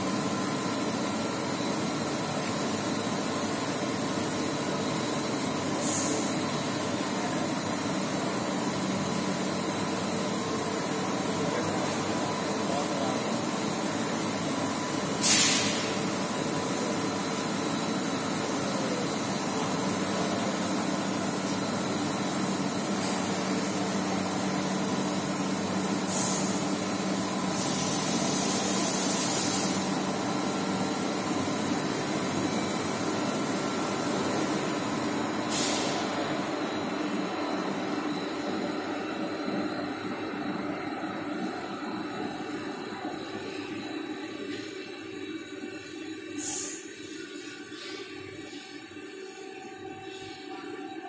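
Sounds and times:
short bursts of hissing: 15.2 - 15.8.

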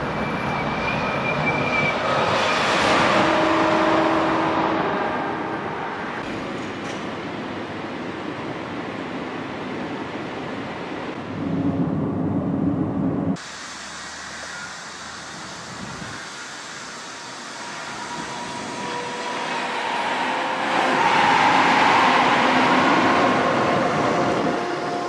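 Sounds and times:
train rushing past: 0.0 - 9.1, 13.3 - 25.0.

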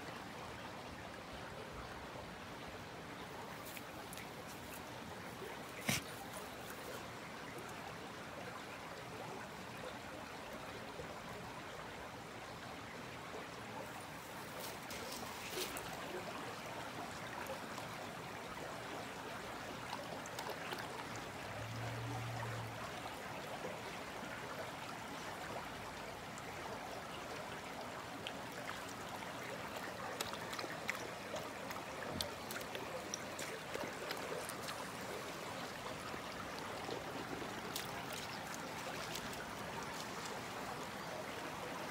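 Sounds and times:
brook babbling over stones: 0.0 - 41.9.

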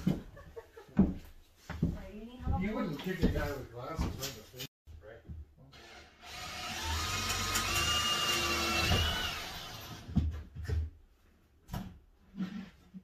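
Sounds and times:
power drill whining: 5.8 - 10.0.

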